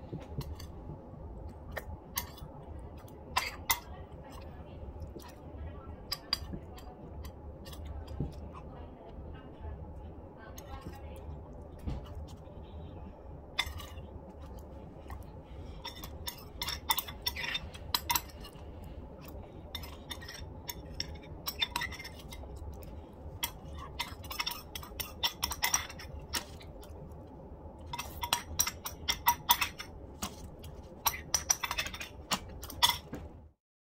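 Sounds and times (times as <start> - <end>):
metal spoon clinking on ceramic bowl: 19.7 - 22.5, 23.4 - 26.6, 27.9 - 33.1.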